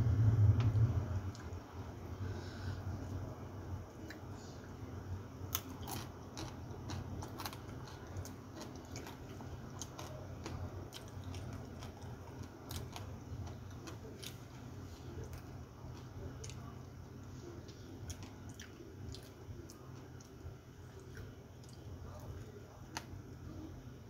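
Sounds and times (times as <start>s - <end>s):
low hum: 0.0s - 24.0s
person chewing and crunching: 5.5s - 16.8s, 17.6s - 23.1s.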